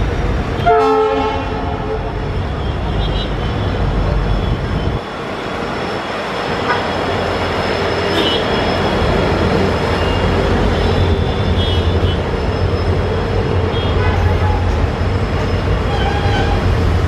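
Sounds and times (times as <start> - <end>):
train wheels rumbling on rails: 0.0 - 17.0
high wheel squeal: 5.8 - 13.2.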